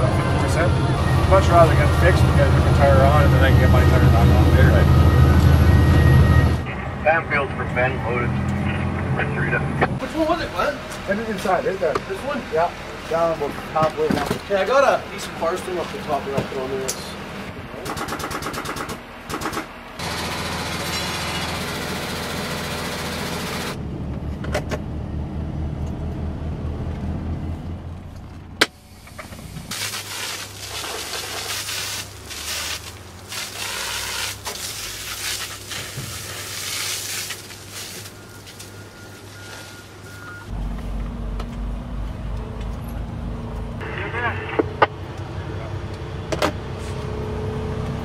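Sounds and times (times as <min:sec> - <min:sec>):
truck engine running: 0:00.0 - 0:29.7
water hose spraying: 0:20.0 - 0:23.8, 0:28.8 - 0:40.4.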